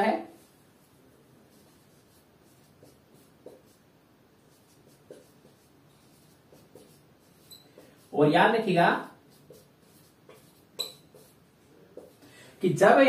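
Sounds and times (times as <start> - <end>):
marker scratching on whiteboard: 0.3 - 12.2
marker squeaks: 4.6 - 8.1, 9.4 - 11.4.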